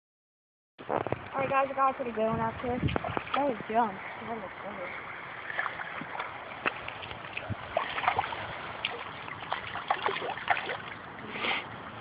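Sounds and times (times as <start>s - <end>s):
fish splashing and thrashing: 2.9s - 4.2s, 4.9s - 11.2s.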